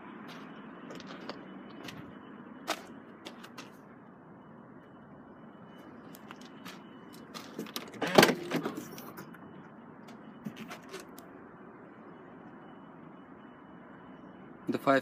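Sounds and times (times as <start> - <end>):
car boot latch clicks and clunk: 7.6 - 8.9.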